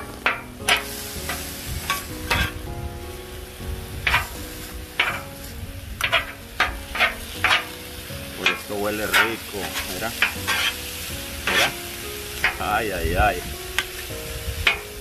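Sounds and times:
metal spatula clacking on griddle: 0:00.0 - 0:02.7, 0:04.0 - 0:05.4, 0:06.0 - 0:07.8, 0:08.4 - 0:12.7, 0:13.8 - 0:15.0
frying sizzle: 0:00.0 - 0:15.0.

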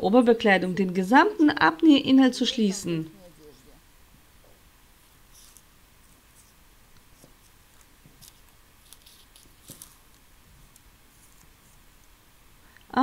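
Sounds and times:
paper rustling: 0:05.3 - 0:12.2
scissors snipping paper: 0:06.4 - 0:12.1.

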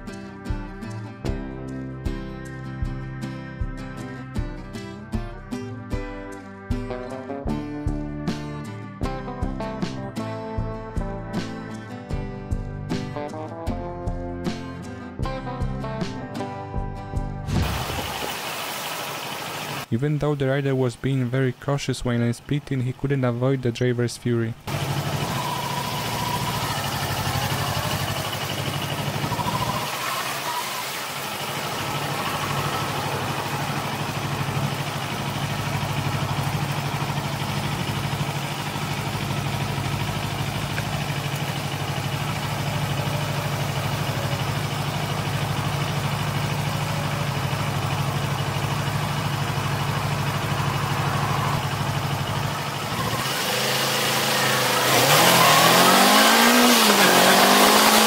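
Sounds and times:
motorcycle engine idling: 0:24.6 - 0:55.2.

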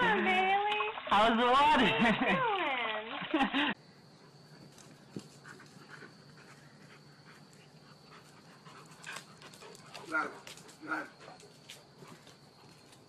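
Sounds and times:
soft dog noises: 0:04.2 - 0:13.0.

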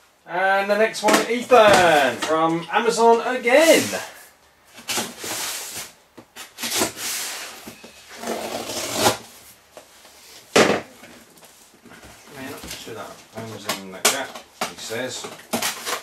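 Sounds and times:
blade slitting packing tape: 0:08.2 - 0:09.2, 0:15.5 - 0:16.0.

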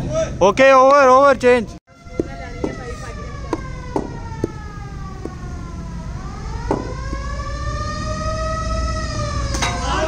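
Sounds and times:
siren wailing: 0:01.9 - 0:10.0
sharp knocks: 0:03.5 - 0:04.6, 0:05.2 - 0:05.4, 0:06.6 - 0:07.3.

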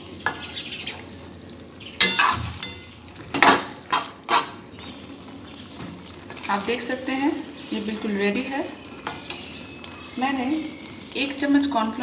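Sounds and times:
low sizzle: 0:00.0 - 0:12.0
metal spoon scraping a pan: 0:00.2 - 0:01.0, 0:02.0 - 0:05.0.

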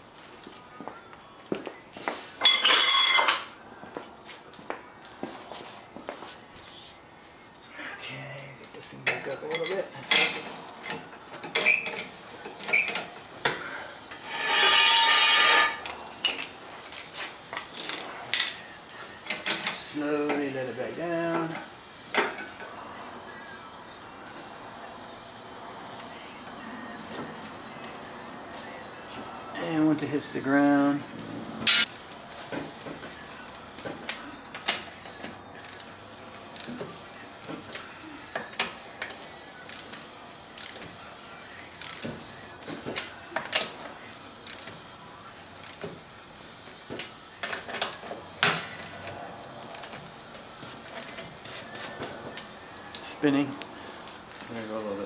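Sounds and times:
jack stand scraping across concrete: 0:14.2 - 0:16.0
sharp metallic clink: 0:31.7 - 0:31.9
torque wrench ratcheting clicks: 0:40.6 - 0:40.8, 0:45.6 - 0:45.8.

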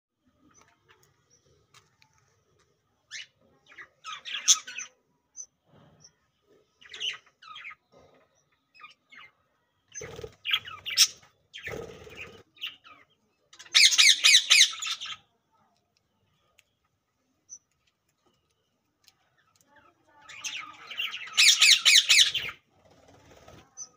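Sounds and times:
budgerigars chirping and squawking: 0:03.1 - 0:05.0, 0:06.8 - 0:15.3, 0:20.3 - 0:23.9.

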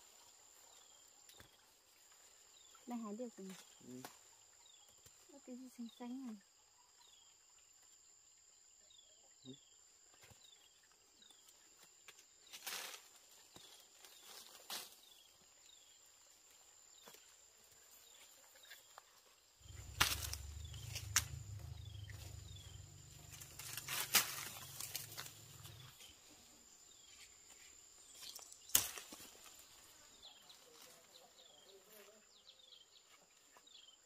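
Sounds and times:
low rumble: 0:19.6 - 0:24.8
sharp snaps: 0:19.8 - 0:22.3.

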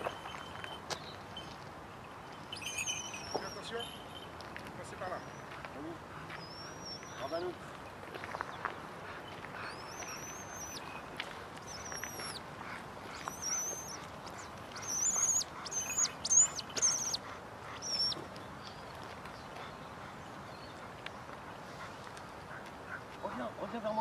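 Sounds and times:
hawk crying: 0:09.6 - 0:11.0, 0:11.6 - 0:18.2.

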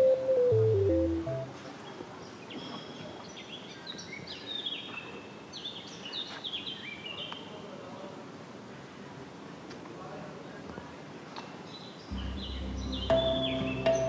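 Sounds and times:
open-air background noise: 0:00.0 - 0:14.0
small birds chirping: 0:01.8 - 0:07.6, 0:11.6 - 0:14.0.

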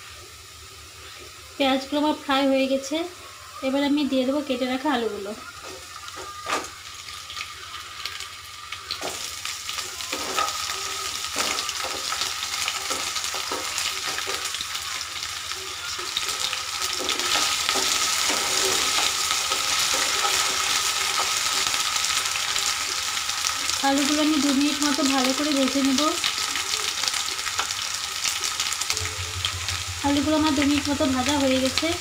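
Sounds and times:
potatoes sizzling in oil: 0:00.0 - 0:32.0.

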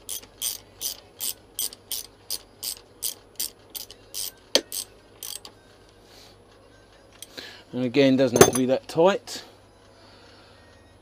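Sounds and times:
socket ratchet clicking: 0:00.0 - 0:05.5.

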